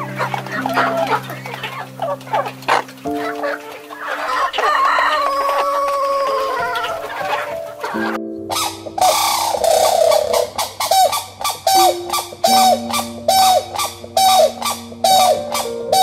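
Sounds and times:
background music with held notes: 0.0s - 16.0s
chickens clucking: 0.0s - 16.0s
rooster crowing: 4.1s - 7.4s.

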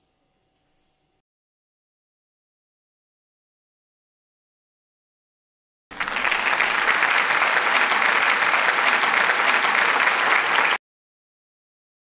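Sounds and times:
crowd applause: 5.9s - 10.8s.

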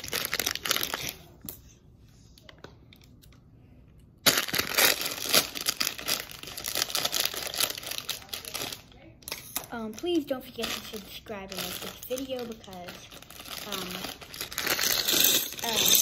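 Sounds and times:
plastic bag crinkling: 0.0s - 1.4s, 4.2s - 9.0s, 9.7s - 16.0s.

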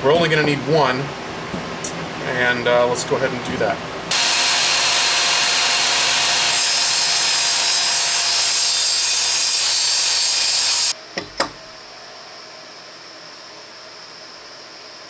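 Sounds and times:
table saw cutting hardboard: 4.1s - 10.9s.

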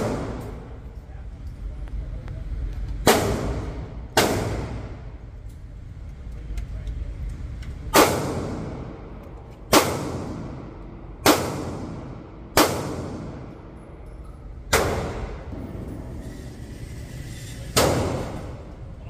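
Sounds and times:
echoing gunshots indoors: 0.0s - 0.9s, 3.0s - 5.4s, 7.8s - 14.0s, 14.6s - 16.2s, 17.6s - 18.8s.

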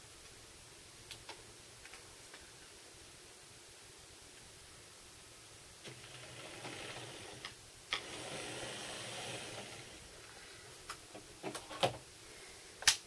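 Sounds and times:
model train motor whirring: 5.8s - 10.1s.

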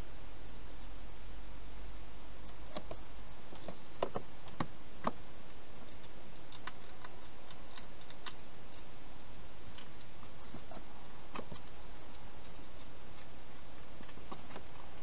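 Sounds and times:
steady hiss: 0.0s - 15.0s
hedgehog eating clicks and crunches: 5.8s - 15.0s.

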